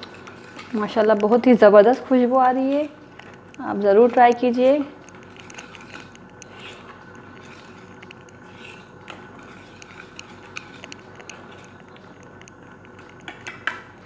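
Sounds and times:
whisk wires clicking on bowl: 0.0 - 14.0
whisk squelching in marinade: 5.2 - 11.9.

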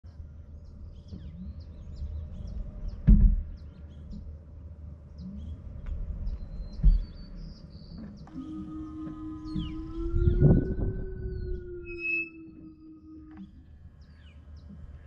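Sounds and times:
birds chirping: 0.1 - 15.0.

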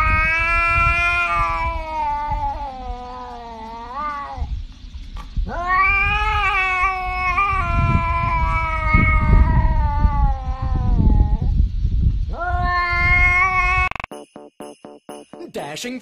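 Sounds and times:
cat yowling: 0.0 - 4.5, 5.4 - 11.5, 12.3 - 14.1.

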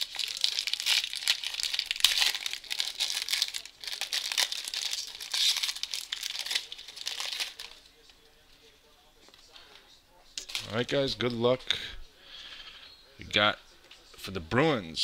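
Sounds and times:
foil wrapper tearing and crinkling: 0.0 - 7.8.

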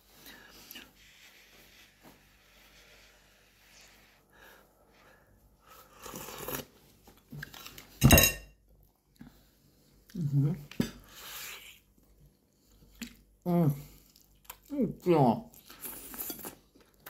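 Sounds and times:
slurp from a spoon: 5.8 - 6.8.

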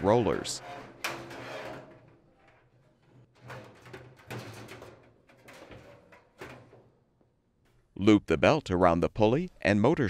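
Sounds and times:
metal drum scraping on rollers: 0.0 - 7.0.

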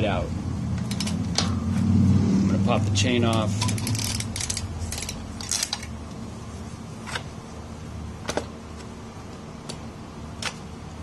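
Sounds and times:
bicycle chain metallic clicks: 0.8 - 1.4, 3.6 - 5.9.

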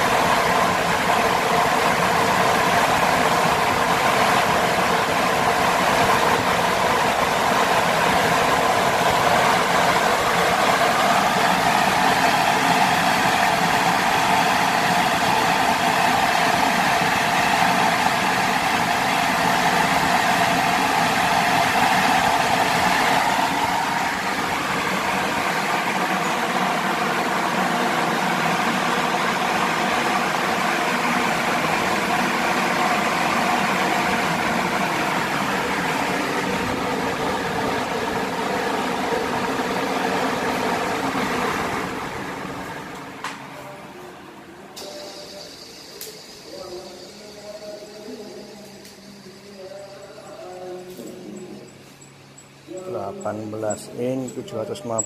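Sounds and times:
electric fan running: 0.0 - 55.0.

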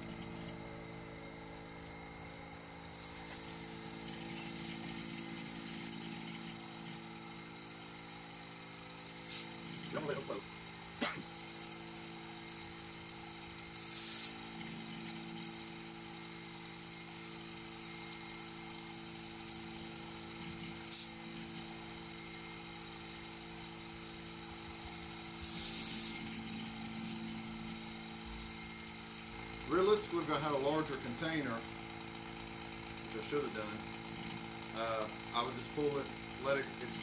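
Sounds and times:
vacuum pump humming: 0.0 - 37.0
short hisses of air: 3.0 - 4.1, 9.0 - 9.5, 13.1 - 14.4, 25.0 - 26.2.

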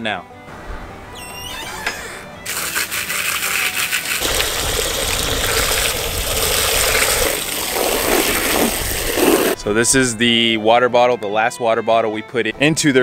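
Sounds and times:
hose nozzle spraying water: 2.5 - 9.6.

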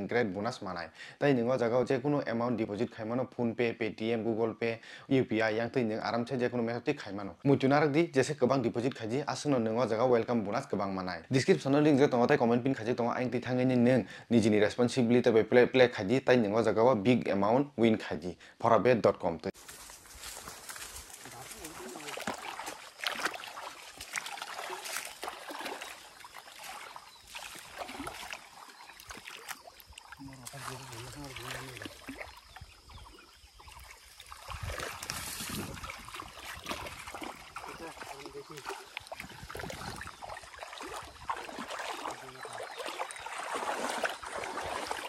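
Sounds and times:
water splashing: 19.7 - 45.0.

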